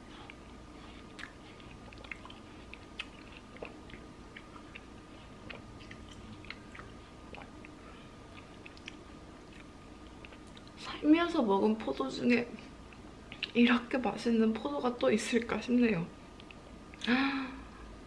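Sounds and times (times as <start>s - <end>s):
grapes being chewed: 0.0s - 10.8s, 12.6s - 13.8s.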